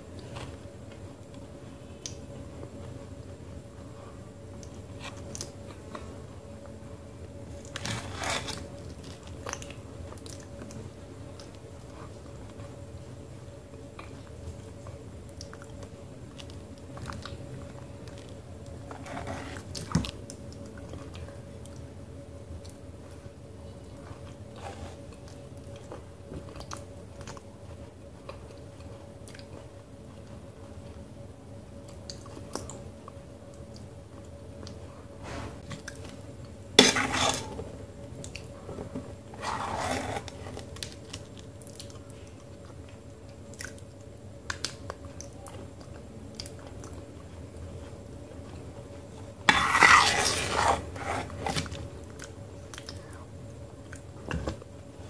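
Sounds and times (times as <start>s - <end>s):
wet chewing and smacking: 40.5s - 47.1s.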